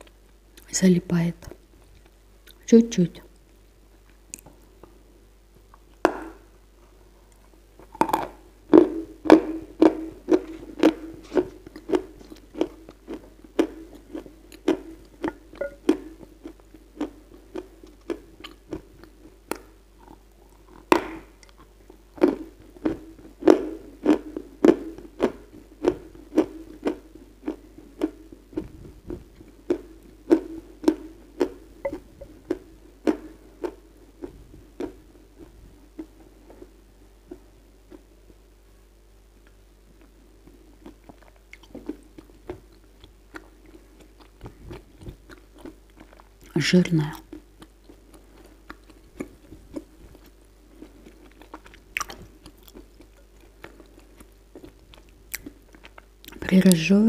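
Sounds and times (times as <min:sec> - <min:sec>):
chewing and crunching clay: 0:40.8 - 0:56.8.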